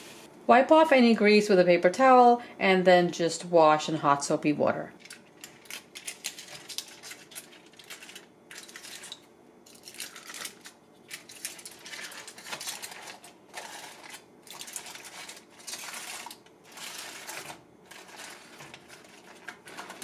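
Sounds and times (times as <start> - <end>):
aluminium foil crinkling: 5.0 - 20.0.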